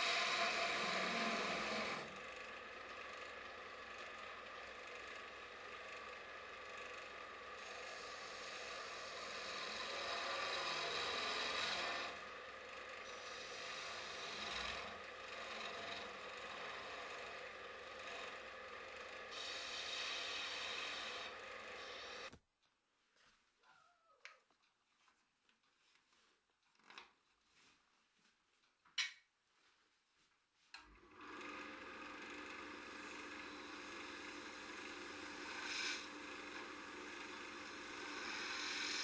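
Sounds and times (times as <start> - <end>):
lathe tool scraping wood: 0.0 - 22.3, 30.8 - 39.0
faint motor hum: 0.0 - 22.4, 30.2 - 39.0.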